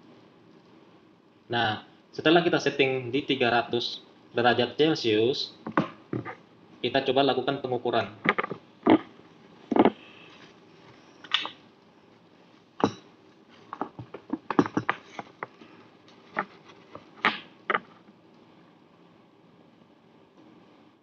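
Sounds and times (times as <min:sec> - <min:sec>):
soldering iron clicks and knocks: 0:13.8 - 0:15.5.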